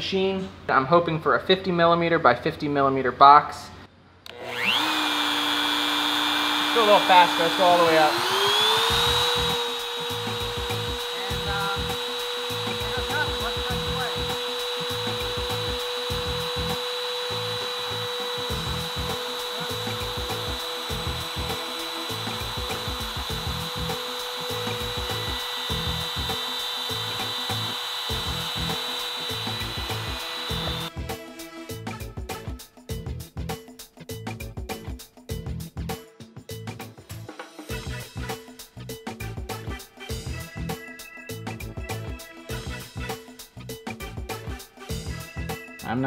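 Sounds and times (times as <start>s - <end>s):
router whining while cutting wood: 4.3s - 30.9s
music: 6.8s - 8.2s, 8.8s - 46.0s.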